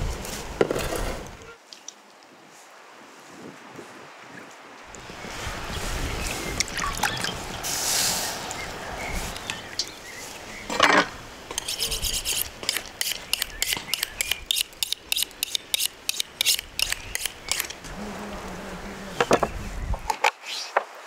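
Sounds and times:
knife scraping on honing steel: 0:11.5 - 0:17.7.

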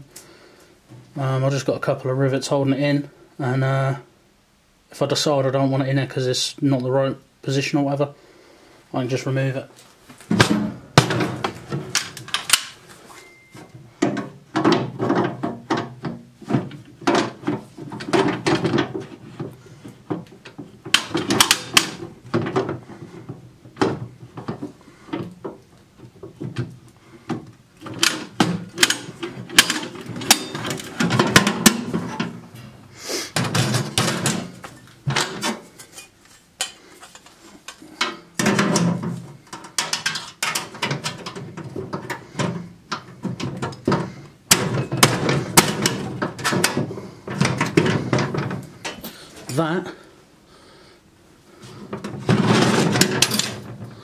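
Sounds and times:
metal stove knocking and clattering: 0:10.3 - 0:12.7, 0:14.0 - 0:26.8, 0:27.8 - 0:32.8, 0:33.4 - 0:35.6, 0:38.0 - 0:49.0, 0:51.9 - 0:54.0.

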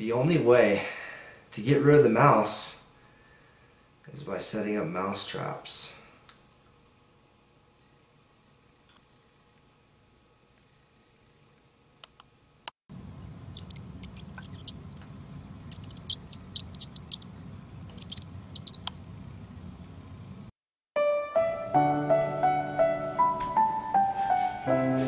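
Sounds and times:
plastic ball clicks and scratches: 0:13.6 - 0:18.9
piano music: 0:21.0 - 0:25.0.

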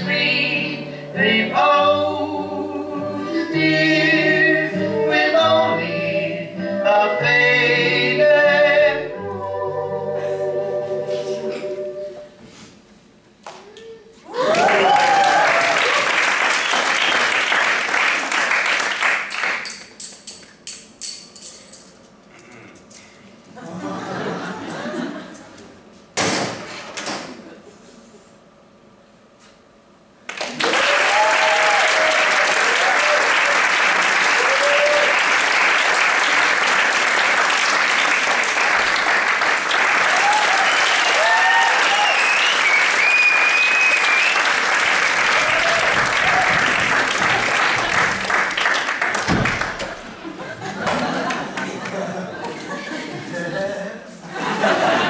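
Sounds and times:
cheers and whistles: 0:14.3 - 0:16.1, 0:30.6 - 0:33.5, 0:34.3 - 0:35.2, 0:40.1 - 0:44.6, 0:45.3 - 0:46.7
audience applauding: 0:14.3 - 0:19.7, 0:30.3 - 0:52.2.

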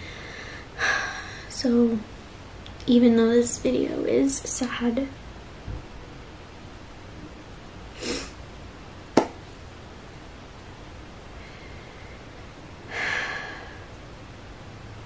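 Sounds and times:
woman sniffling: 0:08.0 - 0:08.4.

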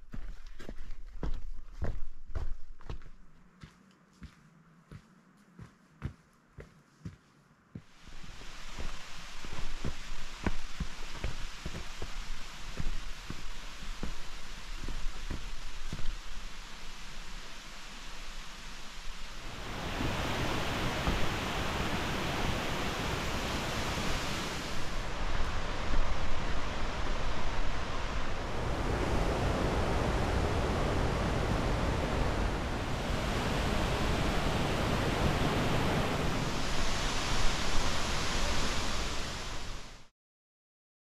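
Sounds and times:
steady rushing noise: 0:07.8 - 0:40.1.

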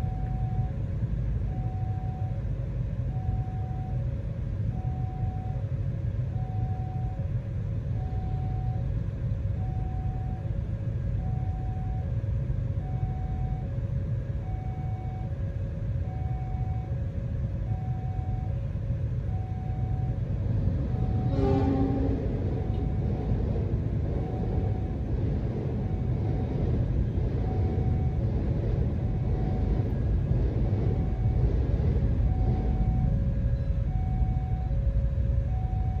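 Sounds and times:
vehicles idling rumble: 0:00.0 - 0:36.0.

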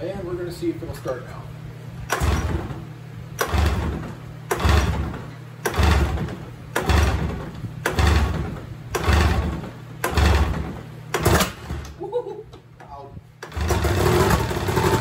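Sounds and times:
steady low hum: 0:00.0 - 0:15.0
recoil starter pulls cranking engine: 0:02.1 - 0:02.8, 0:03.4 - 0:11.9, 0:13.4 - 0:15.0.

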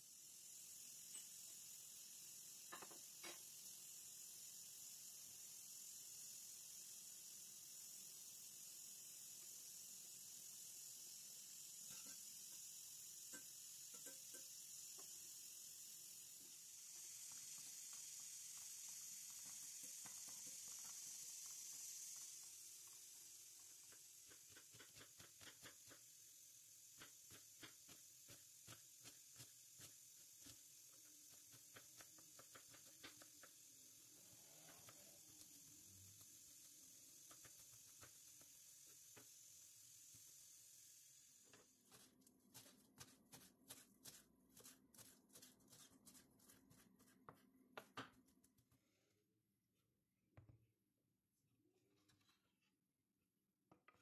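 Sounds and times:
water boiling in pot: 0:00.0 - 0:48.6
knife chopping herbs on wooden board: 0:24.3 - 0:26.0, 0:31.2 - 0:33.5, 0:41.9 - 0:48.2.

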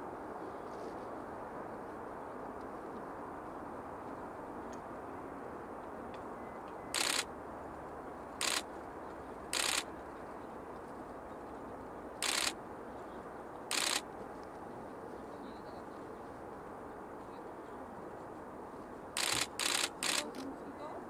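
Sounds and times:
steady low hiss: 0:00.0 - 0:21.0
camera shutter bursts: 0:07.0 - 0:07.3, 0:08.4 - 0:08.7, 0:09.5 - 0:09.9, 0:12.2 - 0:12.6, 0:13.7 - 0:14.1, 0:19.2 - 0:20.5.

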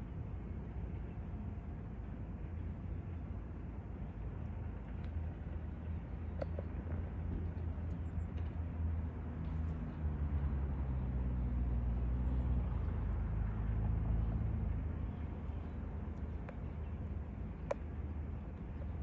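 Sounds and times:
low outdoor rumble: 0:00.0 - 0:19.0
faint clicks: 0:04.9 - 0:05.2, 0:17.6 - 0:17.9.

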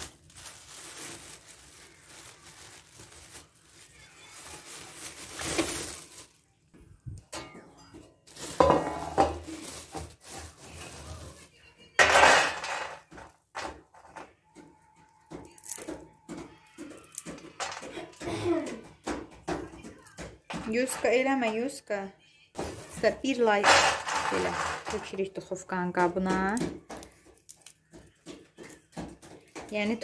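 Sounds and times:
plastic bag crinkling: 0:00.0 - 0:06.7, 0:08.2 - 0:13.3, 0:15.4 - 0:16.0, 0:22.6 - 0:28.8
walnuts clattering onto metal tray: 0:12.0 - 0:14.2, 0:16.8 - 0:18.0, 0:23.0 - 0:25.4.

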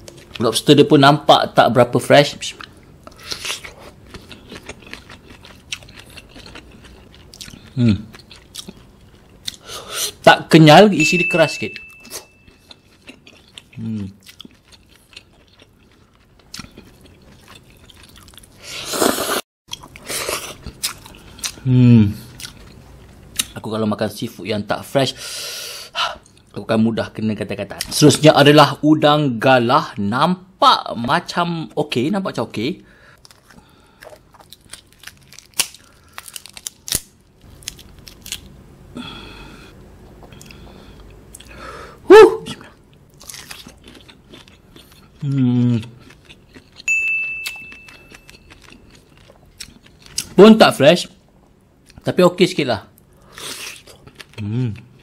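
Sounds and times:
loud noodle slurp: 0:18.7 - 0:19.4
prawn shell cracking: 0:34.4 - 0:38.5.

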